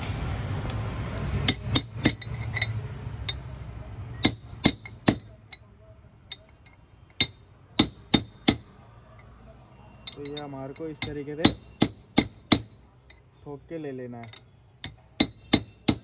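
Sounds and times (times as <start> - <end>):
metal bar striking metal: 1.4 - 3.5.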